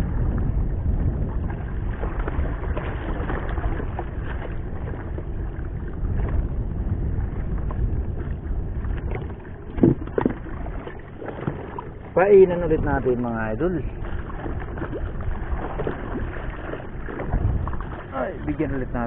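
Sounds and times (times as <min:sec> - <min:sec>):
water sloshing around boat: 0:00.0 - 0:19.0
wind buffeting microphone: 0:00.0 - 0:19.0
knock on boat: 0:09.0 - 0:11.8.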